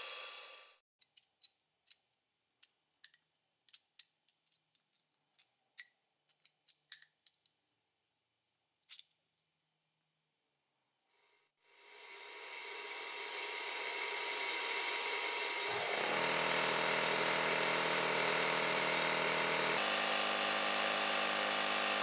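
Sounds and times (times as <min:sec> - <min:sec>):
blast cabinet air hiss: 0:00.0 - 0:00.8.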